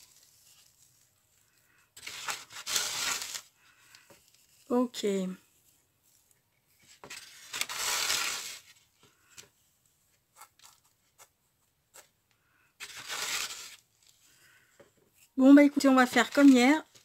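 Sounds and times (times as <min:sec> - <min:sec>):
hands rustling paper in foam box: 0:00.0 - 0:04.7, 0:12.8 - 0:13.8.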